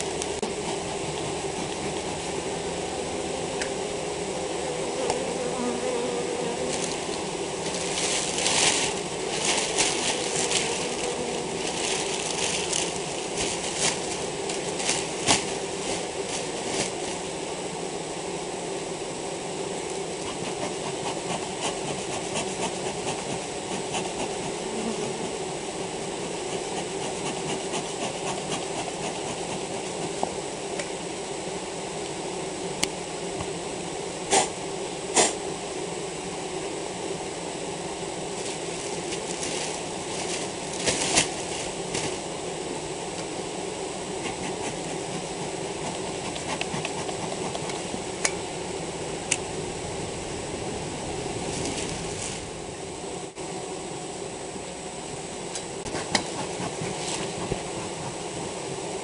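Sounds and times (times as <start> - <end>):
honeybees buzzing: 0.0 - 59.0
rustling and crackling: 6.2 - 17.4, 38.3 - 42.3, 44.1 - 48.1, 51.3 - 52.6, 55.8 - 58.9.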